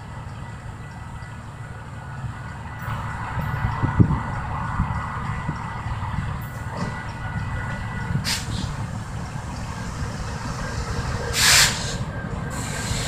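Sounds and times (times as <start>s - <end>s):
diesel locomotive rumbling: 0.0s - 13.0s
hissing air burst: 10.4s - 13.0s.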